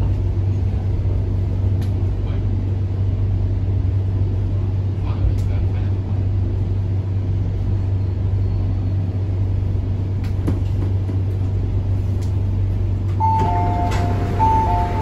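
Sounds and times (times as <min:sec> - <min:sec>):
train car hum and rumble: 0:00.0 - 0:15.0
train door chime beeps: 0:13.2 - 0:15.0.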